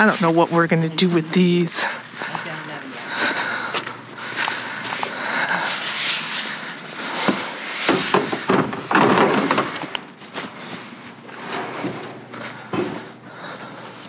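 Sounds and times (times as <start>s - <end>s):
items clattering in a dumpster: 7.1s - 13.2s.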